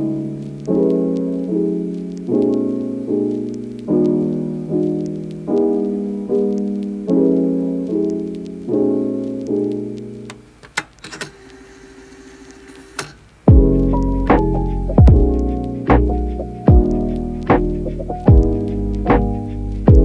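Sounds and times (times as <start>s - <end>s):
piano chords: 0.0s - 10.6s, 13.5s - 20.0s.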